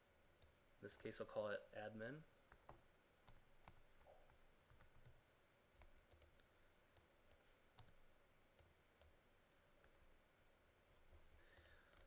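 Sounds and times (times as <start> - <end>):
computer mouse clicks: 5.8 - 8.0.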